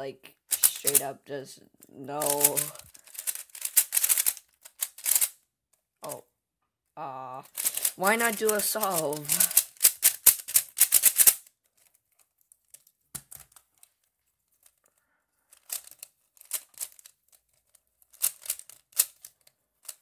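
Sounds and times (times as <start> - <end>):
speed cube clicking: 0.5 - 1.1, 2.2 - 5.4, 7.4 - 11.5, 15.5 - 17.2, 18.1 - 20.0.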